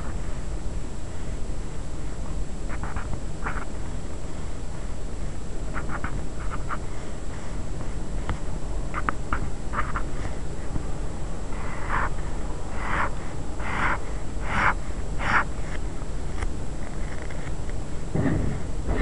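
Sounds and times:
steady low hiss: 0:00.0 - 0:19.0
pen drawing lines on paper: 0:09.0 - 0:10.4, 0:11.7 - 0:12.2.

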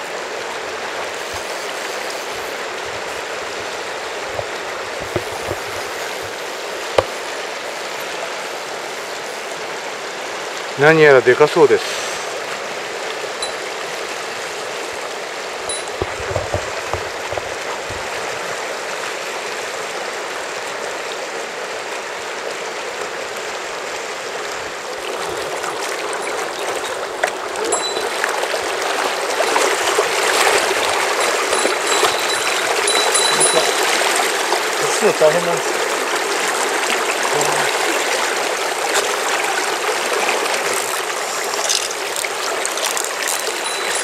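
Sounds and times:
river rushing over rocks: 0:12.1 - 0:44.0.

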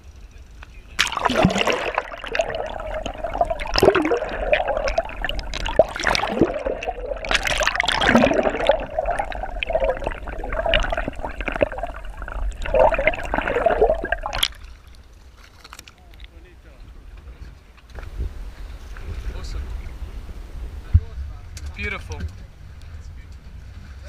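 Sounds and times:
bubbles: 0:01.0 - 0:14.9
underwater churning and gurgling: 0:01.0 - 0:14.9.

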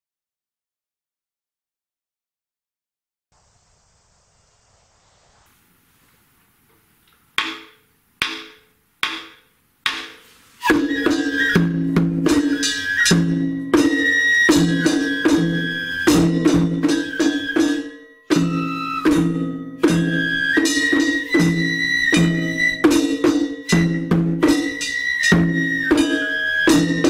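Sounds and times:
drum strikes: 0:07.4 - 0:27.0
festival drums and flute music: 0:10.0 - 0:27.0.

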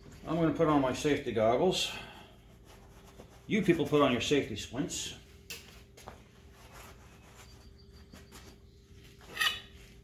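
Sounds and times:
quiet handling sounds: 0:02.3 - 0:10.0.

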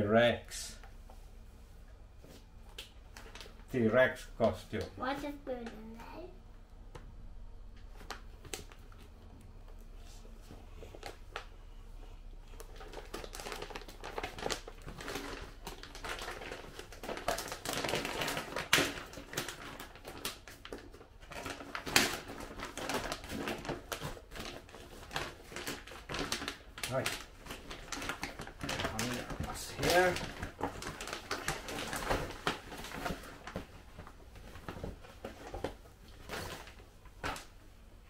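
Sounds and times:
packaging crinkling and rustling: 0:02.6 - 0:03.8, 0:10.5 - 0:11.6, 0:12.4 - 0:37.6.

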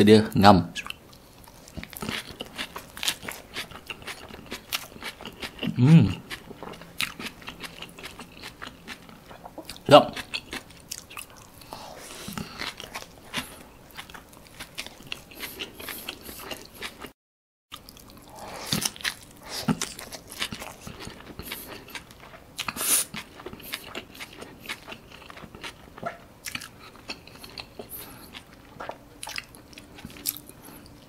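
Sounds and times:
person biting and chewing food: 0:01.1 - 0:17.1, 0:17.7 - 0:31.0.

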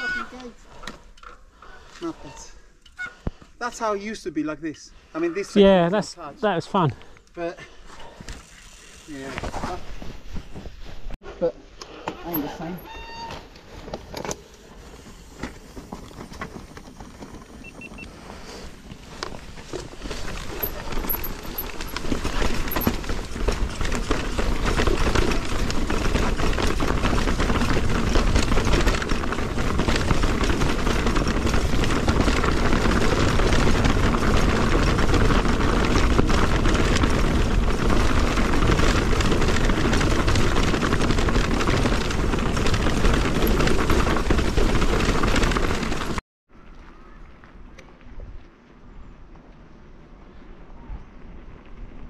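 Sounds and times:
bike knocking and rattling on rocks: 0:12.3 - 0:18.0, 0:18.8 - 0:46.2.

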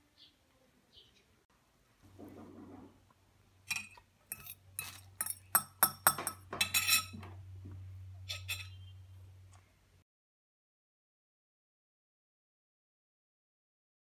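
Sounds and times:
fork clinking on ceramic plate: 0:03.7 - 0:07.2, 0:08.3 - 0:08.8.

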